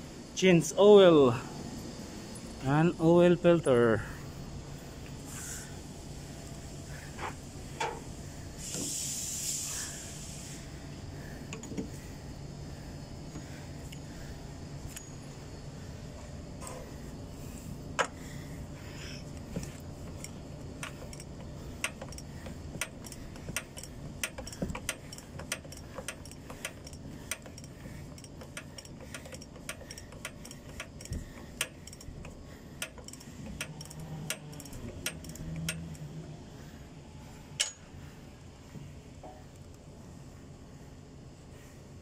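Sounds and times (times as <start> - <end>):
socket ratchet clicking: 19.7 - 36.1.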